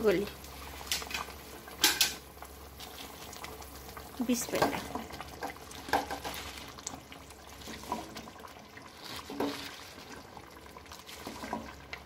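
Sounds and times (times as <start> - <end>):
curry sizzling in pan: 0.0 - 12.0
leaves rustling: 5.7 - 8.2, 8.9 - 10.1.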